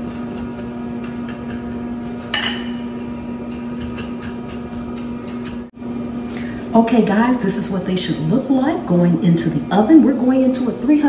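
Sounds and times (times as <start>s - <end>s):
glass bowl clink: 2.3s - 2.8s.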